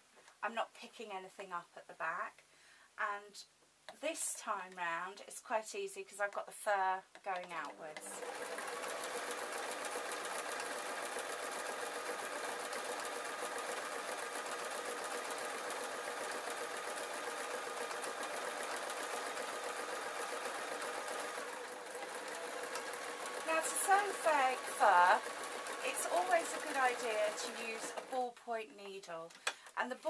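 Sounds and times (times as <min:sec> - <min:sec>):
sewing machine stitching: 0:07.3 - 0:28.4.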